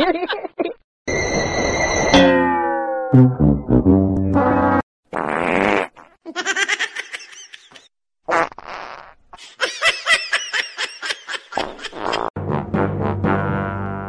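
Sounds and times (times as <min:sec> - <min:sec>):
comedic fart sound effect: 0:03.1 - 0:06.2, 0:08.3 - 0:09.2, 0:11.6 - 0:14.0.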